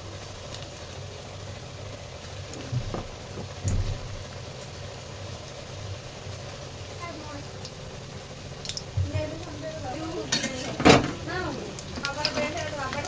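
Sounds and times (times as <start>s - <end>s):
batter sizzling in hot oil: 0.0s - 13.0s
dull low thumps: 2.6s - 4.4s.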